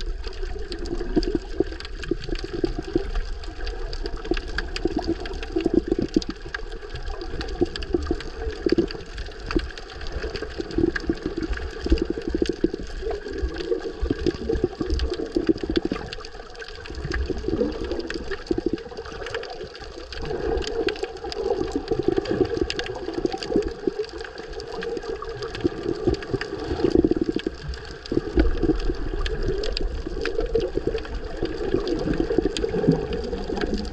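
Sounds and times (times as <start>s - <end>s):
small crackles: 0.0s - 33.9s
underwater rush of seawater: 0.0s - 33.9s.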